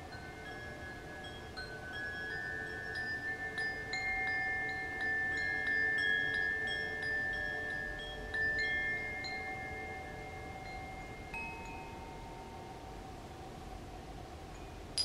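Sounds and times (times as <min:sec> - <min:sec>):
wind chime tinkling: 0:00.0 - 0:12.8.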